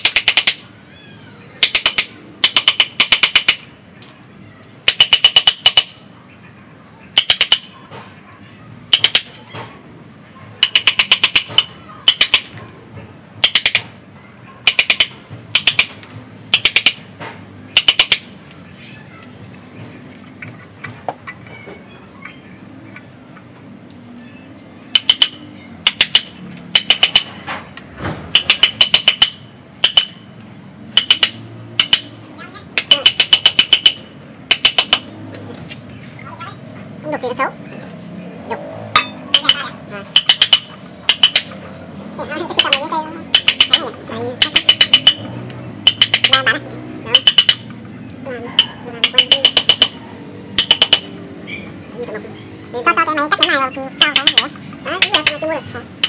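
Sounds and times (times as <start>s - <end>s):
chisel tapping with metallic ring: 28.4s - 30.2s, 31.0s - 32.1s, 32.8s - 35.1s, 45.9s - 46.5s, 50.6s - 51.1s.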